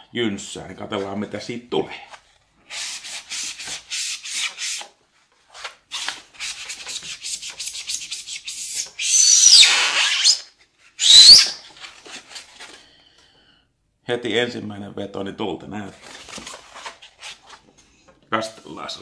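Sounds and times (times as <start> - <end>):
sponge squeaking: 11.0 - 11.7.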